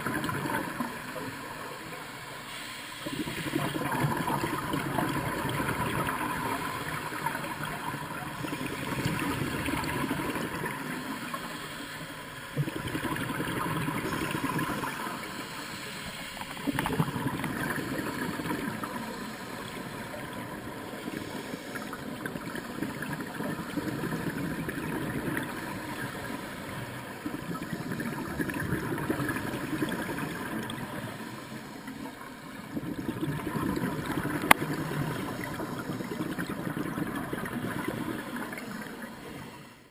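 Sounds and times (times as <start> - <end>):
scuba regulator breathing underwater: 2.3 - 22.9.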